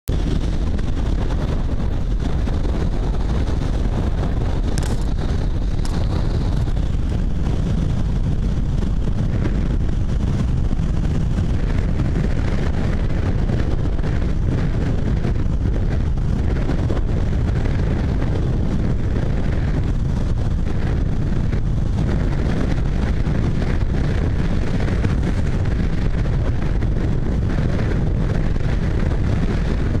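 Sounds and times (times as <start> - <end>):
car road and engine noise: 0.1 - 30.0
wind buffeting microphone: 0.1 - 30.0.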